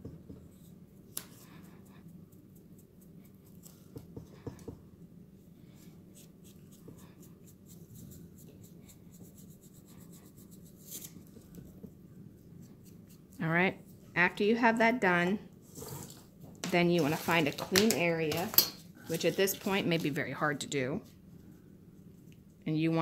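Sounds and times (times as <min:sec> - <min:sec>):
low steady hum: 0:00.0 - 0:23.0
sponge brush dabbing paint: 0:05.6 - 0:14.0
scrape: 0:05.7 - 0:11.2, 0:15.6 - 0:16.3, 0:16.9 - 0:17.5, 0:19.0 - 0:20.0.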